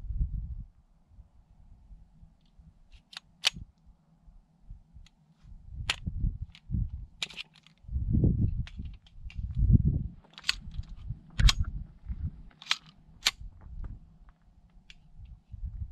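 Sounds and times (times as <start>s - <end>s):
pistol metallic clicks: 3.0s - 3.6s, 5.9s - 7.8s, 10.3s - 11.7s, 12.5s - 13.4s
low rumbles: 7.8s - 15.9s.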